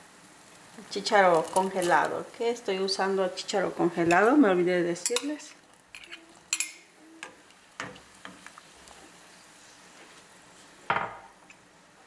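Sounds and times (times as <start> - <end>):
utensils clicking against pot: 1.3 - 2.2, 5.0 - 8.6.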